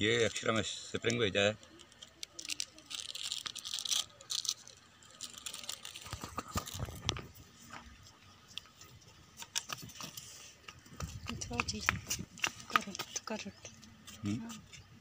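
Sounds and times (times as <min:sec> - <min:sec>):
plastic packaging crinkling: 0:01.6 - 0:07.4.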